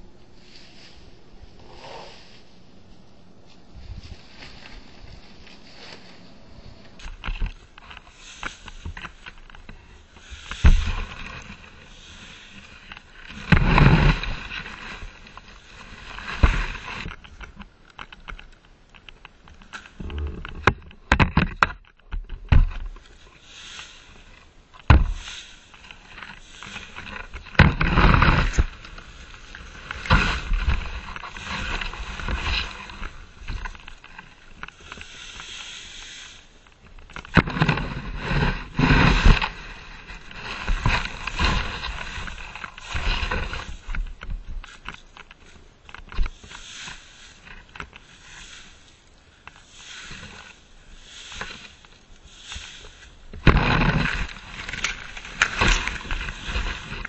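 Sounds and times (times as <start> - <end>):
dry leaves rustling and crunching: 0.0 - 17.3
rake scrapes and knocks: 0.0 - 57.0.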